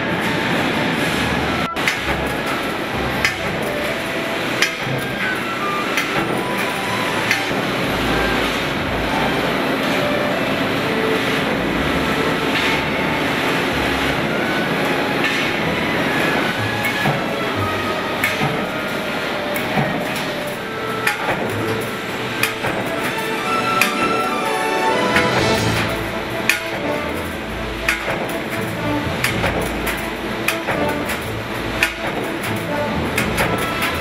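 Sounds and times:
machinery running: 0.0 - 34.0.

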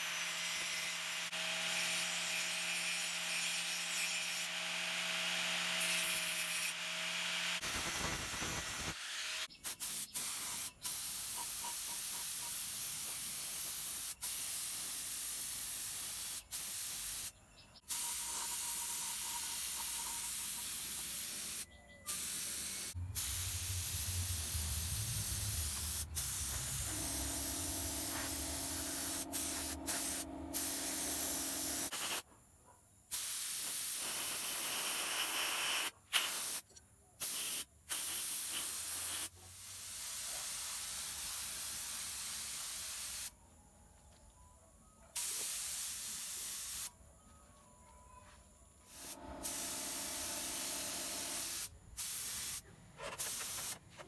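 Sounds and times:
sandblasting gun hissing: 5.8 - 6.8, 7.4 - 17.3, 17.9 - 32.2, 33.1 - 36.6, 37.2 - 43.3, 45.2 - 46.9, 48.9 - 53.8
steady hum: 22.7 - 31.9.

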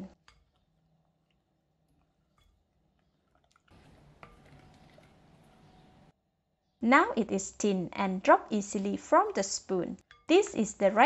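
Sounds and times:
spoon stirring wet batter: 0.1 - 5.9, 10.0 - 10.6.

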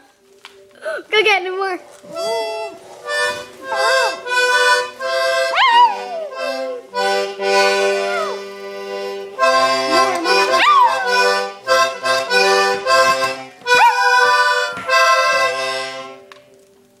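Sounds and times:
accordion chords: 2.1 - 16.3
dog howling: 5.5 - 6.8, 7.9 - 8.4, 10.5 - 11.4, 13.7 - 14.5.

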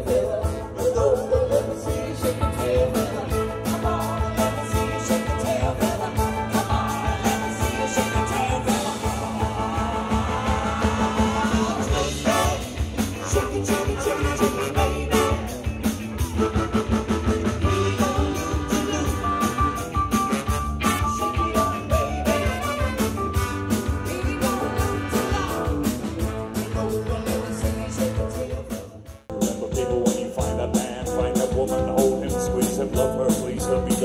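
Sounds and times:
horn section: 0.0 - 34.0
live soul-pop band playing: 0.0 - 34.0
woman singing: 24.0 - 25.8, 26.6 - 28.9.

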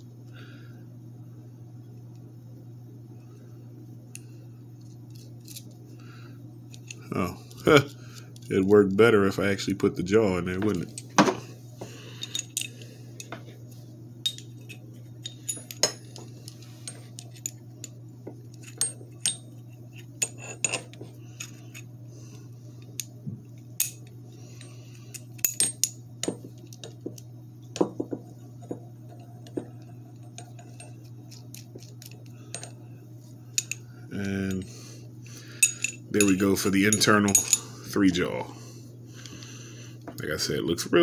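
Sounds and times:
steel parts clicking and clinking: 12.2 - 13.4, 14.2 - 21.8, 23.8 - 27.2, 28.7 - 32.8, 33.5 - 34.7, 35.6 - 37.6.

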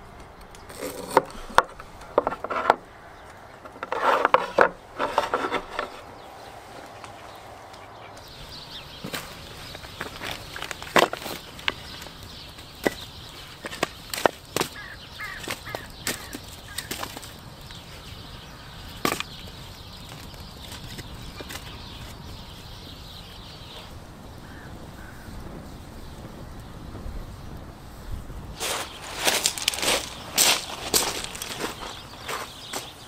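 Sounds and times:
wood logs clacking: 0.2 - 6.2, 6.8 - 18.0, 18.8 - 22.2, 28.6 - 33.0.

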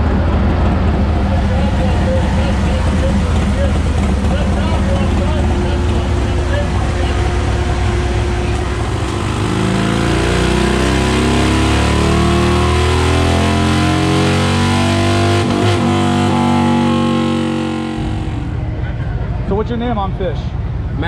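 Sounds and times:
motorcycle engine revving: 0.0 - 19.4.

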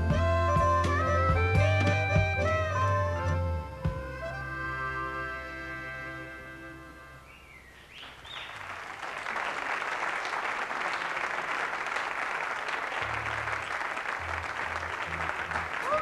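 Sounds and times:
harmonica chord: 0.0 - 7.5
whistles from audience: 7.3 - 8.7
audience applauding: 8.0 - 16.0.

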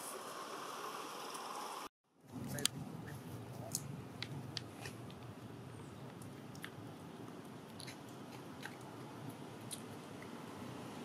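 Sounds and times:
monkey chewing food: 6.1 - 10.3.

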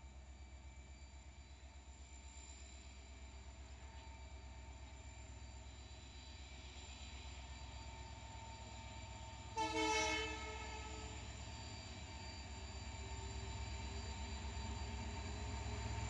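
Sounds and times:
diesel locomotive rumble: 7.2 - 16.0
train horn blast: 9.6 - 11.2.

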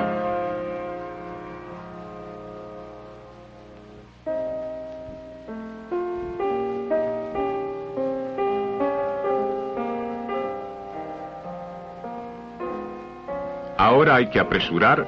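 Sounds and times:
slow gentle piano melody: 0.0 - 15.0.

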